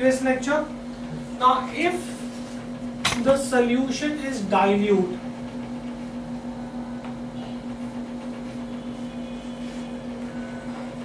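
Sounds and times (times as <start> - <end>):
low electrical hum: 0.0 - 11.0
marker squeaking on whiteboard: 7.4 - 10.8.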